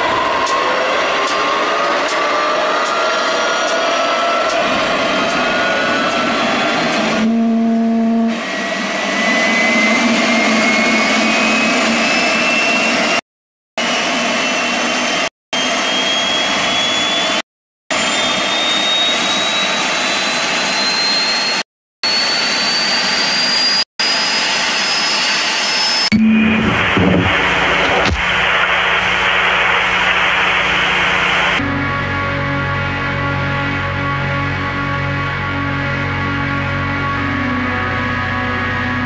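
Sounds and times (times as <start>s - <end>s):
jet engine roar: 0.0s - 7.6s, 8.3s - 13.2s, 13.8s - 31.7s
thin rising whine: 8.4s - 13.2s, 13.8s - 31.6s
tv static and glitch noise: 26.2s - 31.6s.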